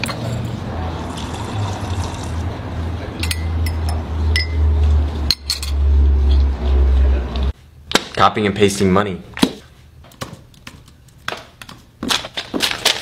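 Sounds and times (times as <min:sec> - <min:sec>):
coffee pouring into cup: 0:01.0 - 0:02.4.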